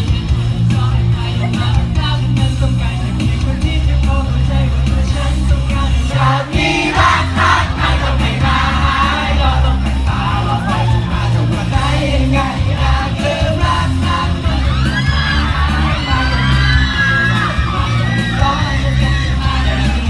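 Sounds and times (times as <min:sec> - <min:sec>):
backing track through speakers: 0:00.0 - 0:20.0
crowd yelling and cheering: 0:00.0 - 0:20.0
men singing pop song into microphones: 0:00.5 - 0:20.0
high-pitched fan screams: 0:14.5 - 0:19.9.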